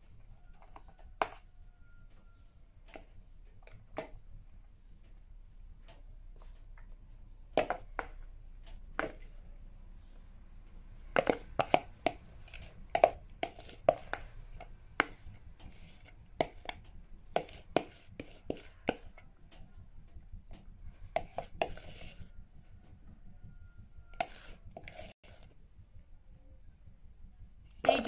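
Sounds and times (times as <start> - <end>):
metal spoon scraping bowl: 11.1 - 19.2, 21.0 - 22.4, 24.1 - 25.5.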